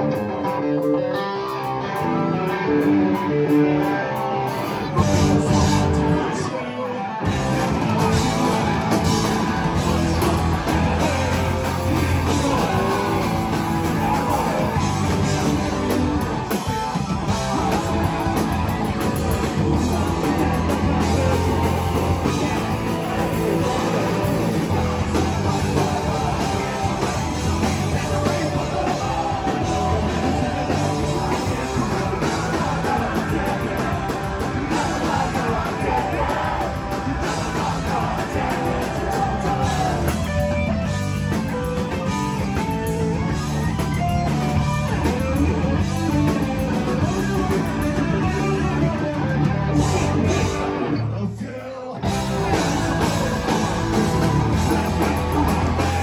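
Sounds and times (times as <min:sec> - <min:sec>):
punk rock band playing: 0:00.0 - 0:56.0
person singing: 0:04.0 - 0:40.7, 0:49.8 - 0:56.0.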